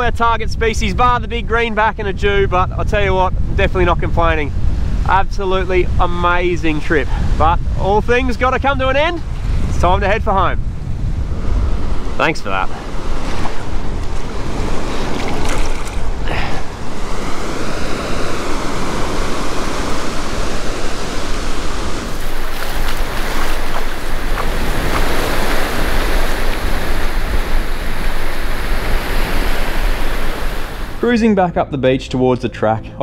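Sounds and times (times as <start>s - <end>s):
wind rumbling on microphone: 0.0s - 31.0s
small waves washing on sand: 11.4s - 31.0s.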